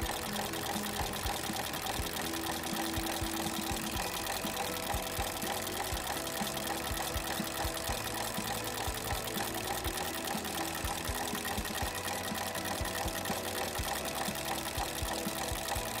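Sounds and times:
stitching machine chatter: 0.0s - 16.0s.

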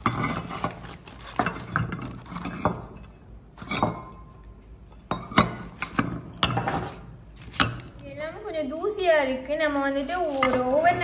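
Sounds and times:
clay bowls clinking: 0.0s - 8.0s, 10.3s - 11.0s.

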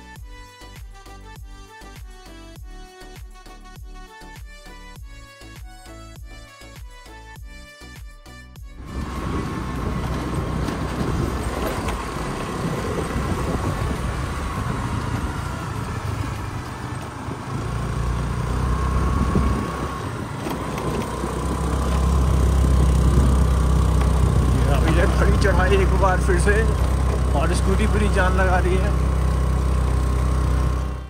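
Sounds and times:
wind rushing over microphone: 8.8s - 17.6s, 18.8s - 21.8s
scooter engine running: 8.8s - 31.0s.

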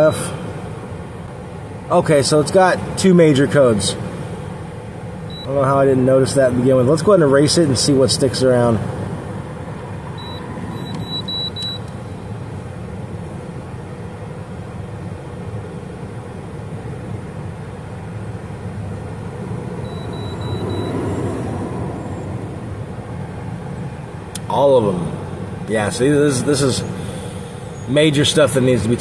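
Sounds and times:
steady low rumble: 0.0s - 29.0s
short high beeps: 5.3s - 5.6s, 10.2s - 11.9s, 19.8s - 21.2s.

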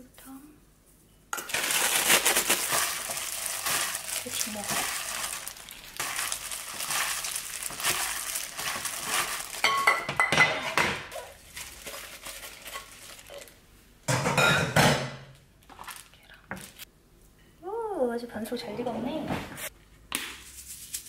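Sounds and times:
plastic glove crinkling: 1.4s - 10.0s, 11.1s - 13.6s, 15.6s - 16.9s, 20.4s - 21.0s
glass bowl clinking on plate: 9.6s - 10.9s.

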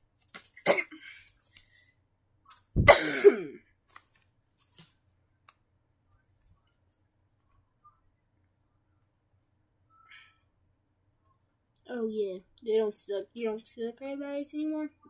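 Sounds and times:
cough-like vocal burst: 2.8s - 3.6s.

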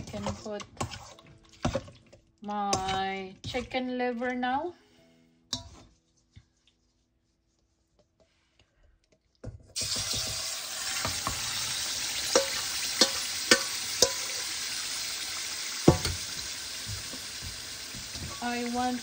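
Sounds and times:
livers sizzling in hot oil: 0.0s - 3.6s, 9.8s - 19.0s
metal spoon clinking against pot: 2.7s - 3.7s, 5.5s - 5.8s, 12.2s - 14.4s.

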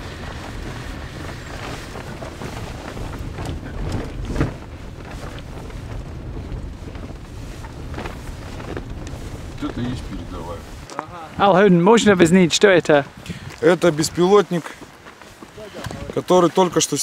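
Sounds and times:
engine and tyre rumble: 0.0s - 12.2s.

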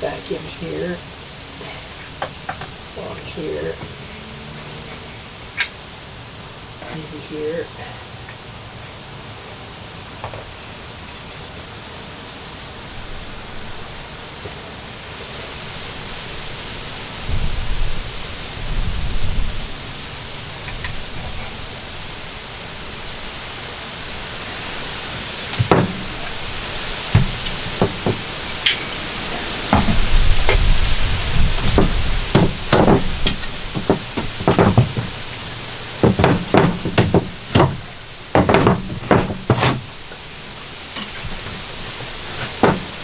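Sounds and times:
steady hiss: 0.0s - 43.0s
wooden framing knocking on van floor: 25.6s - 26.3s, 27.1s - 28.3s, 29.7s - 30.6s, 31.6s - 35.3s, 36.0s - 39.9s, 42.5s - 42.9s.

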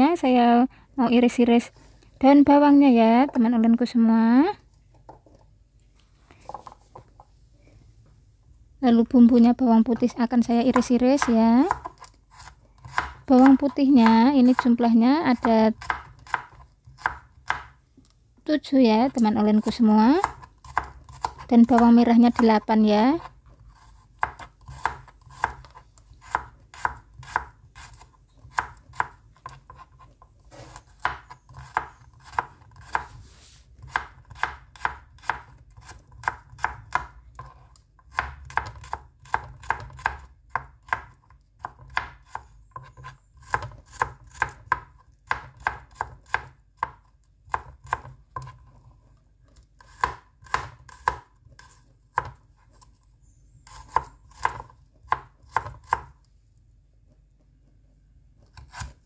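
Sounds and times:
knife chopping on cutting board: 10.7s - 14.7s, 15.3s - 17.8s, 23.2s - 33.1s, 33.8s - 48.8s, 49.8s - 52.4s, 53.7s - 56.2s, 58.5s - 59.0s.

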